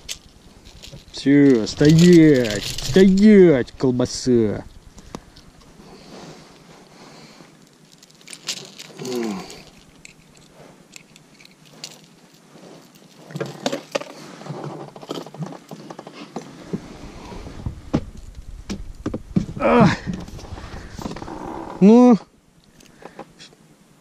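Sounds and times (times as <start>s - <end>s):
metal forceps clinking on hooks: 0.0s - 3.4s, 8.0s - 12.2s
handling knocks and rustles: 0.0s - 21.8s
short falling groan: 19.4s - 22.0s.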